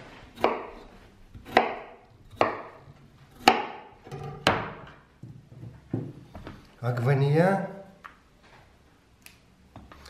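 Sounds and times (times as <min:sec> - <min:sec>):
knife chopping on wooden board: 0:00.4 - 0:04.8.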